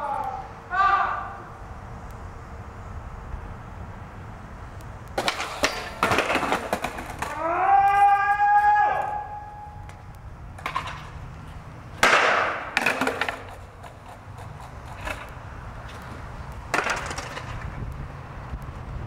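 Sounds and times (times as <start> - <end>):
skateboard clattering on concrete: 5.2 - 8.2, 9.9 - 11.2, 12.0 - 17.8.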